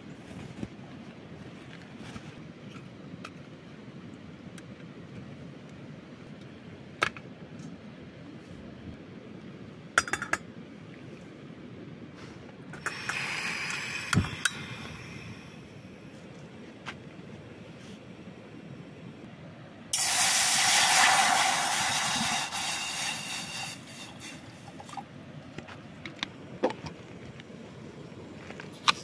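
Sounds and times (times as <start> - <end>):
gas hissing from burner: 12.2 - 15.8, 19.9 - 25.0.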